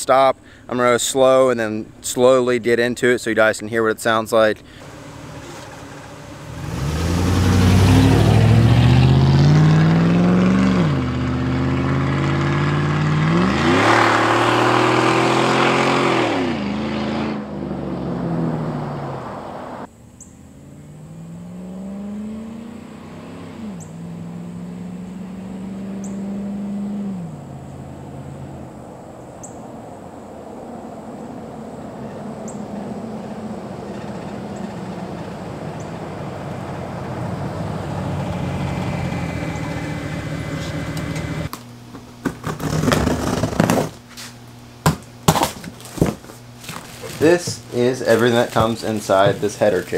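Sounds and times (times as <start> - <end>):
truck engine accelerating: 4.8 - 41.5, 46.4 - 49.9.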